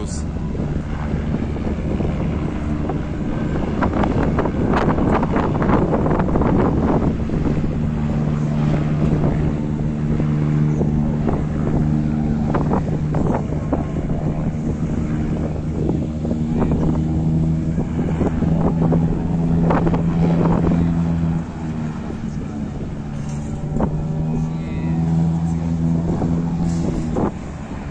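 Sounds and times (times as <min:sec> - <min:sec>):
engine running steadily: 0:00.0 - 0:27.9
wind on microphone: 0:00.0 - 0:27.9.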